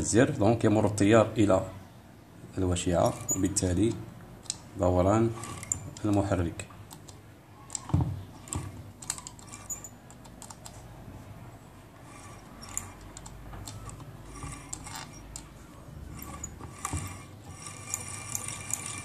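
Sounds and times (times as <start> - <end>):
motor humming: 5.2 - 6.2, 12.0 - 19.0
motor brushes clicking: 5.2 - 10.8, 12.0 - 19.0.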